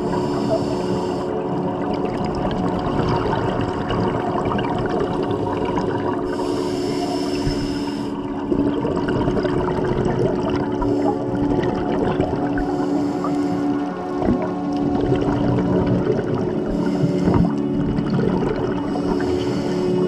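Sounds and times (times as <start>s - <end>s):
regulator hiss on inhaled breath: 0.0s - 1.4s, 6.3s - 8.2s, 12.6s - 13.8s, 18.9s - 20.0s
muffled underwater rumble: 0.0s - 20.0s
steady hum: 0.0s - 20.0s.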